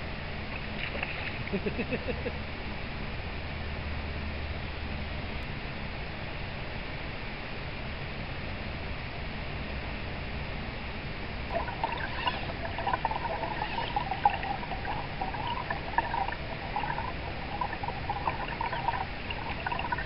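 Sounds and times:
water burbling and trickling: 0:11.4 - 0:20.0
river water rushing: 0:11.5 - 0:20.0.

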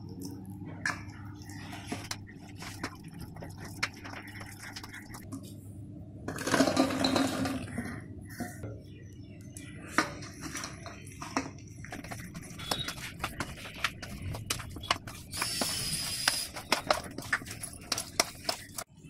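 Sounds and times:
spoon scraping bowl: 0:11.9 - 0:18.9.

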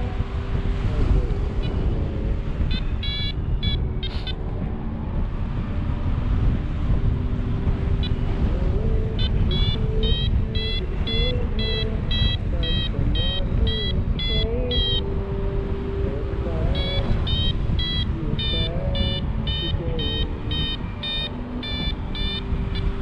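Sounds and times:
wind rushing over microphone: 0:00.0 - 0:23.0
variometer high beeps: 0:01.6 - 0:04.8, 0:07.9 - 0:15.5, 0:16.5 - 0:23.0.

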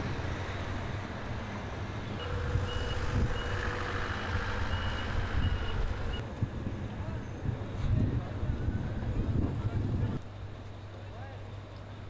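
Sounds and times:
reversing alarm beeping: 0:02.2 - 0:06.2.

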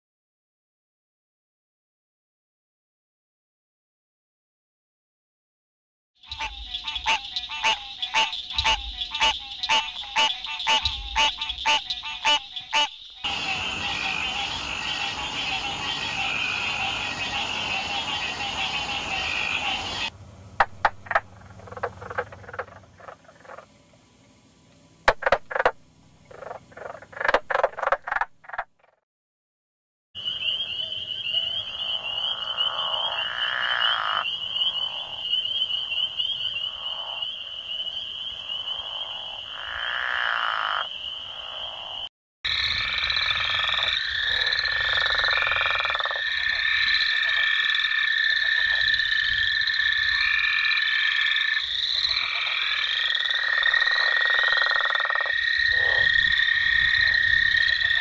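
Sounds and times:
frog chorus: 0:06.2 - 0:23.7, 0:25.1 - 0:28.6, 0:30.2 - 0:58.0
frog long croaks: 0:06.2 - 0:23.8, 0:25.1 - 0:29.0, 0:30.2 - 0:58.0
frog knocking and drumming: 0:06.3 - 0:23.7, 0:25.0 - 0:29.0.

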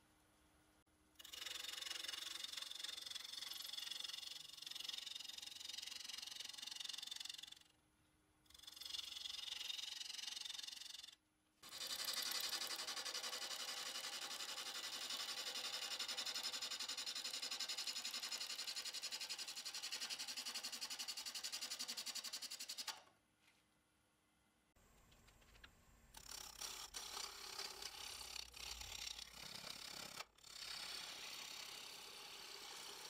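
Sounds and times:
wood lathe turning wood: 0:26.2 - 0:33.0.

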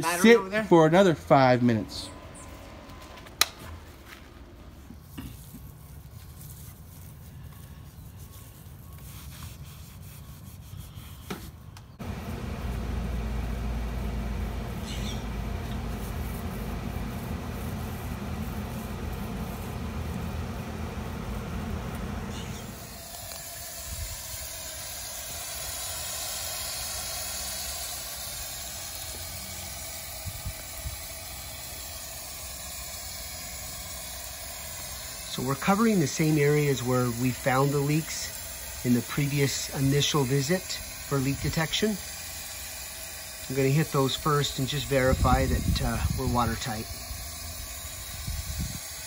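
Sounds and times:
hose water spraying on stone: 0:05.0 - 0:11.0, 0:14.6 - 0:19.7, 0:22.3 - 0:49.0.

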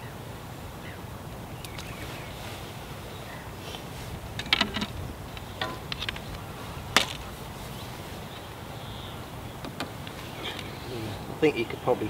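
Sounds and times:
steady hiss: 0:00.0 - 0:12.0
fishing tackle clicks and knocks: 0:04.3 - 0:07.3.

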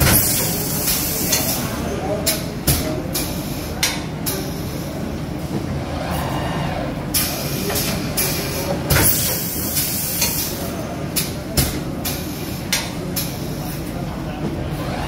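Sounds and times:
pneumatic actuator hisses: 0:00.0 - 0:01.7, 0:07.2 - 0:10.6
machine mechanical hum: 0:00.0 - 0:15.0.

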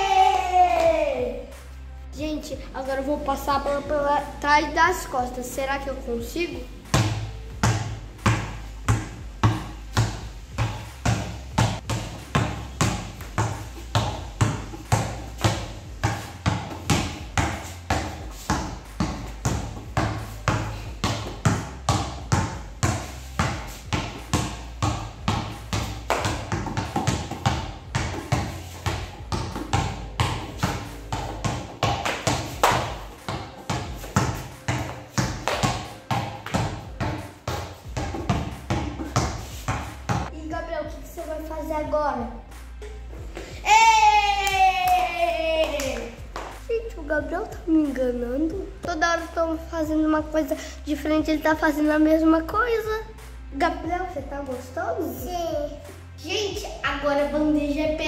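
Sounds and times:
basketball bouncing on stone floor: 0:06.9 - 0:40.3.

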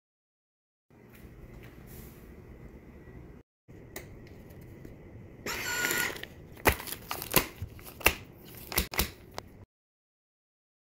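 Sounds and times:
plastic bag crinkling: 0:06.2 - 0:08.7.

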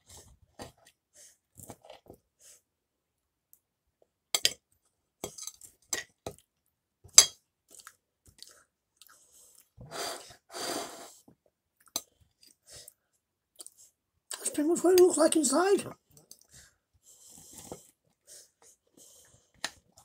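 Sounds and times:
chewing and crunching pastry: 0:07.6 - 0:09.8.

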